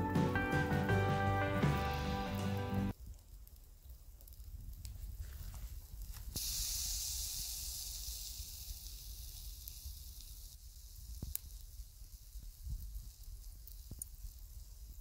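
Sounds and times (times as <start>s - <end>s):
food sizzling on grill: 6.0s - 15.0s.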